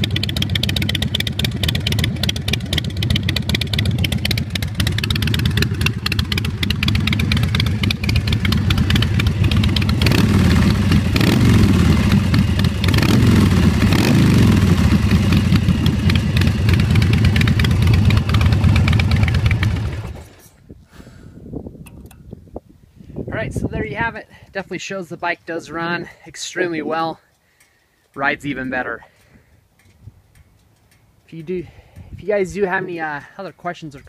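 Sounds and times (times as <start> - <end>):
motorcycle engine idling: 0.0 - 20.4
motorcycle throttle revving: 0.0 - 20.5.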